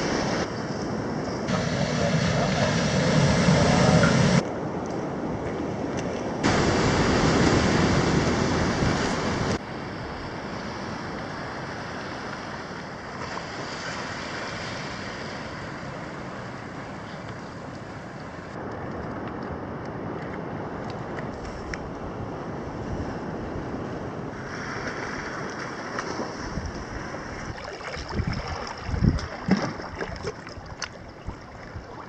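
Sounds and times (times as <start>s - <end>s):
wind on microphone: 0.0s - 32.0s
surf washing against rocks: 1.5s - 4.4s, 6.3s - 18.6s, 22.6s - 32.0s.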